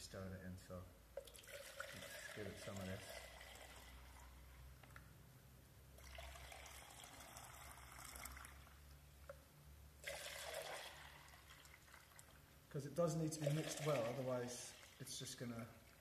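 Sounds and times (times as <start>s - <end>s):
liquid pouring between plastic jugs: 1.2s - 5.0s, 6.0s - 9.4s, 10.0s - 12.6s, 13.2s - 16.0s.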